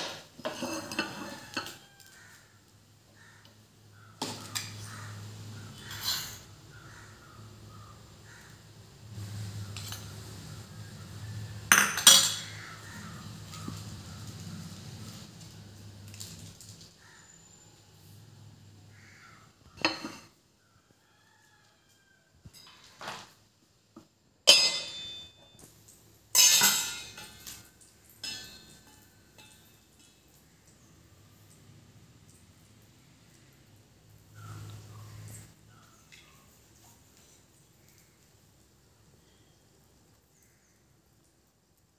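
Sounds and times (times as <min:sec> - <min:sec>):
metallic kitchenware clatters: 0:00.0 - 0:02.0, 0:05.8 - 0:06.5, 0:11.6 - 0:12.8, 0:19.8 - 0:20.3, 0:24.4 - 0:30.4
metal utensil clinking cookware: 0:00.0 - 0:02.1, 0:05.8 - 0:06.5, 0:09.4 - 0:10.6, 0:11.6 - 0:14.0, 0:19.8 - 0:20.3, 0:24.4 - 0:30.9.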